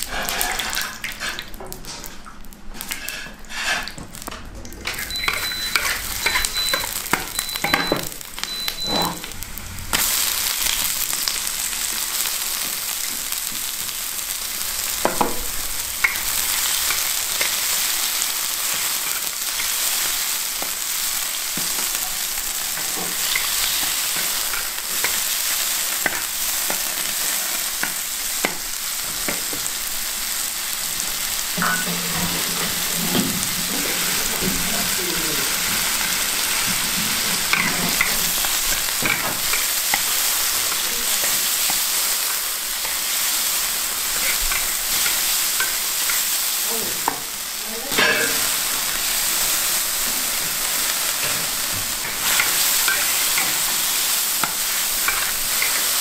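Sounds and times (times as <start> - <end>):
food sizzling in a wok: 0.0 - 56.0
spatula scraping a wok: 2.8 - 4.0, 4.9 - 7.4, 31.1 - 46.2, 47.9 - 56.0.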